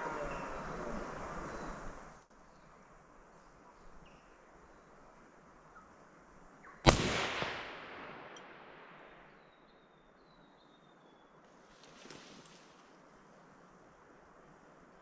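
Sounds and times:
rifle shot with echo: 6.8s - 9.4s.

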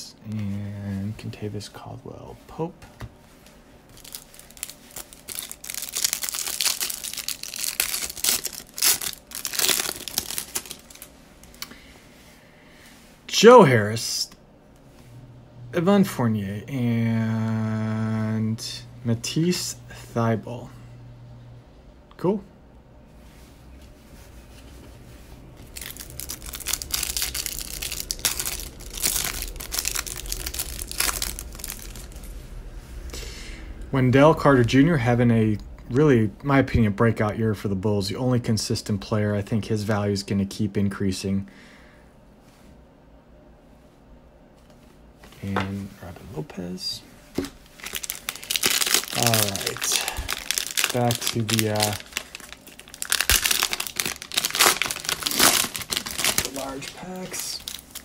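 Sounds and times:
cellophane wrapper tearing: 3.9s - 11.6s, 25.6s - 32.3s, 47.7s - 58.0s
wrapper crackling: 3.9s - 11.6s, 25.6s - 32.4s, 47.6s - 58.0s.

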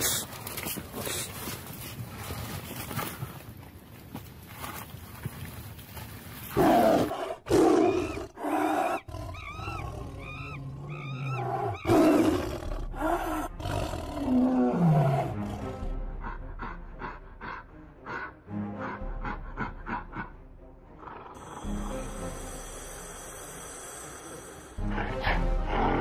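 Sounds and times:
animal roars: 6.5s - 15.8s
high arched animal cries: 8.8s - 12.0s
music: 9.4s - 26.0s.

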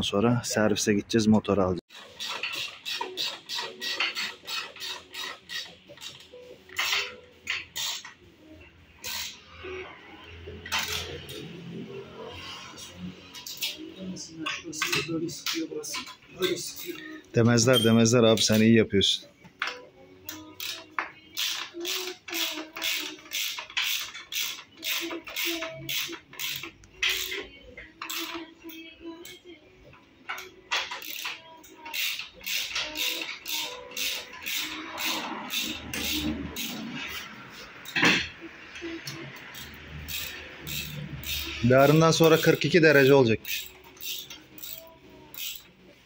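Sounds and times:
ratchet wrench clicking: 1.9s - 8.2s, 9.0s - 9.4s, 10.6s - 11.4s, 13.4s - 13.8s, 20.2s - 29.4s, 30.3s - 38.0s, 39.0s - 45.8s.

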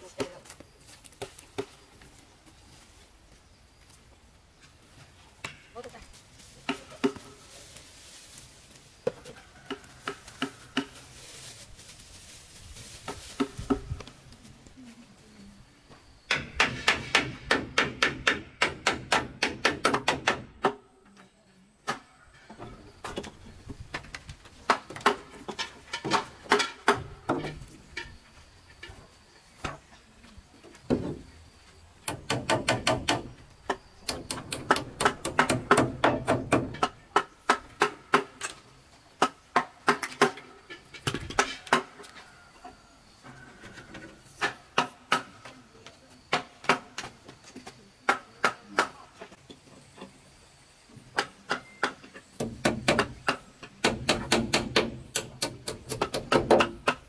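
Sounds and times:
hammer striking nails into wood: 16.3s - 20.8s, 34.1s - 36.9s, 51.2s - 57.0s.

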